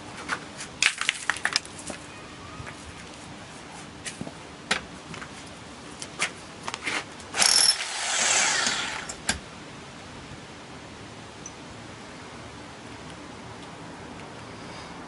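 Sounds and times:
loud scrape: 7.4 - 9.2.

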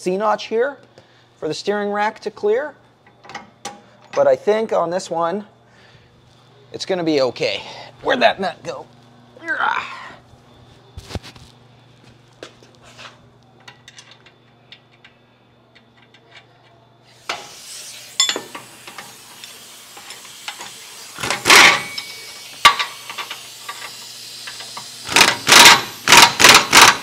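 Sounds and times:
air hiss: 17.1 - 26.2
impact wrench bursts: 17.1 - 27.0.

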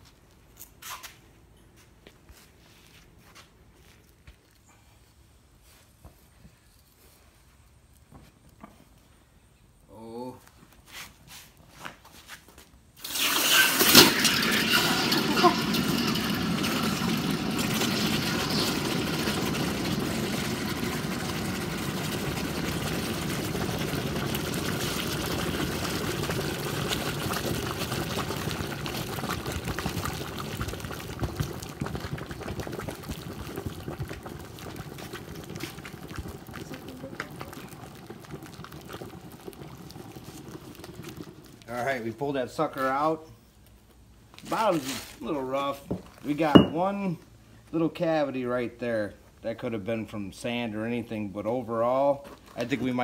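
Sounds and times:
hot metal hissing in water: 13.0 - 22.0.

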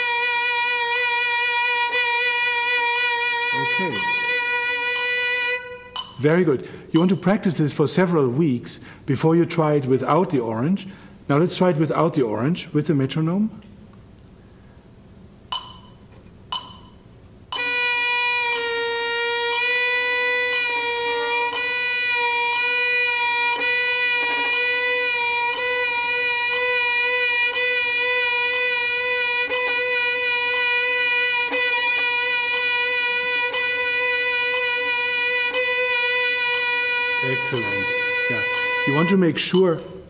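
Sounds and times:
violin bowed note with vibrato: 0.0 - 6.4, 17.5 - 39.8
metronome clicks: 5.9 - 6.3, 7.0 - 7.4, 15.5 - 17.7, 39.5 - 40.0.

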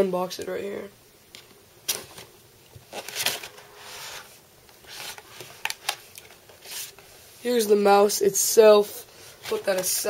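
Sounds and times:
cardboard and plastic rustling: 1.9 - 7.1, 9.3 - 10.0.

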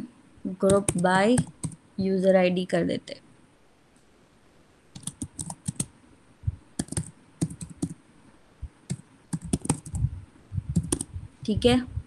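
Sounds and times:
typing on a computer keyboard: 0.6 - 1.8, 5.0 - 5.9, 6.8 - 8.0, 8.9 - 10.0, 10.8 - 11.1.

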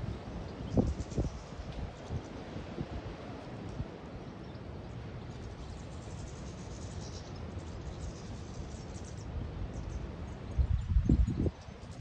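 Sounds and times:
small birds twittering: 0.0 - 2.9, 3.7 - 12.0
wind rumble on microphone: 0.0 - 4.1, 7.6 - 12.0.

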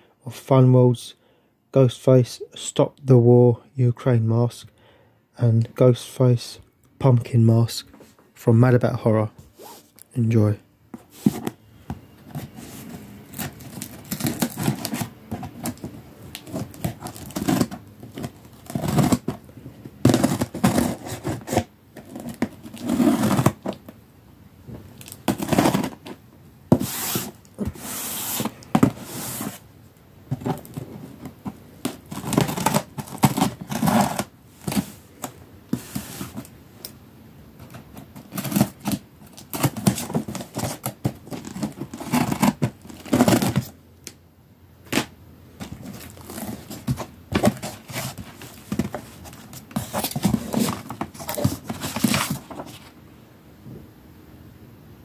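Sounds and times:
cardboard scraping: 10.9 - 24.0, 25.0 - 29.7, 30.3 - 36.6, 37.6 - 43.8, 44.8 - 53.0
tape tearing: 12.9 - 19.4, 20.0 - 23.9, 25.0 - 29.6, 30.4 - 34.9, 37.6 - 43.7, 44.9 - 52.8.

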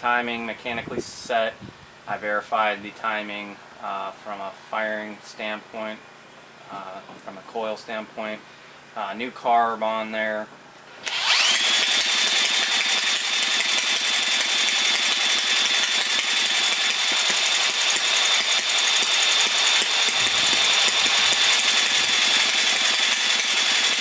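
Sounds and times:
engine turning over: 11.0 - 24.0
power drill motor whine: 11.0 - 24.0.

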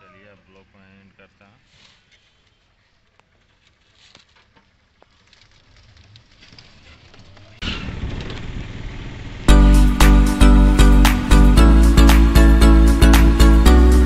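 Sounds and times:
wind and road noise: 1.8 - 9.5
loud music: 9.5 - 14.0.

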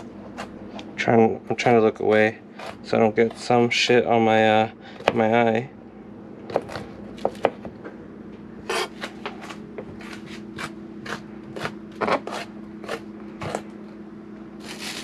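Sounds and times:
low appliance hum: 0.0 - 15.0
knife chopping on cutting board: 8.7 - 13.6.

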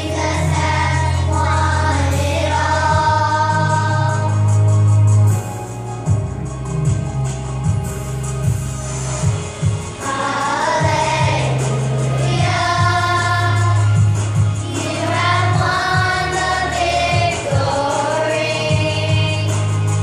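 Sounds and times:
children's choir singing: 0.0 - 4.6, 10.0 - 19.9
instrumental accompaniment with beat: 0.0 - 20.0.

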